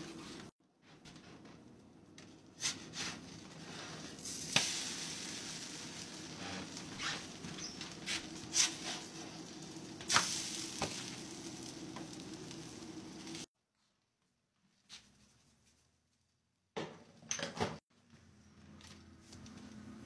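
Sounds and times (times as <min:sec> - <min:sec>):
spatula scraping griddle: 0:02.6 - 0:04.4, 0:05.4 - 0:11.0
toast sizzling on a griddle: 0:03.6 - 0:13.5.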